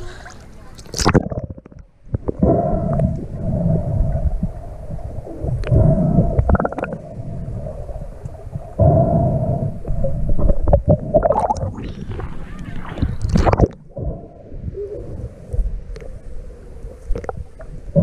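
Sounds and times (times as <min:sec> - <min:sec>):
muffled underwater water rumble: 0:00.0 - 0:18.0
steady underwater hum: 0:00.0 - 0:18.0
bubbly bursts: 0:00.9 - 0:03.2, 0:04.3 - 0:08.7, 0:09.9 - 0:14.4.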